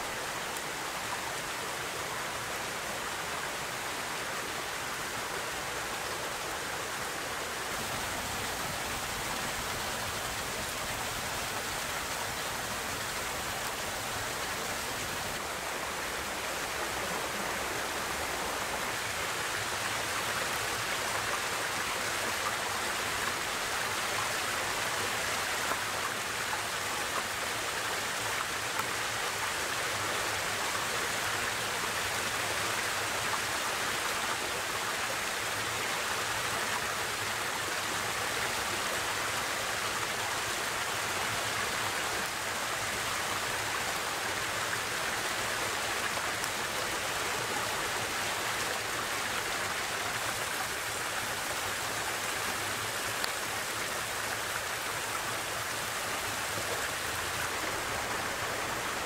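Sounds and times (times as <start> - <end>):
waterfall splashing over rocks: 0.0 - 59.0.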